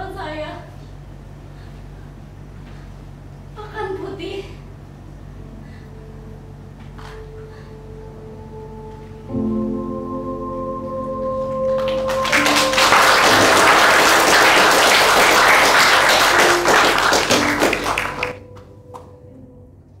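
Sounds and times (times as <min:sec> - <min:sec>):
sustained music chord: 0:05.2 - 0:20.0
audience applauding: 0:11.6 - 0:18.4.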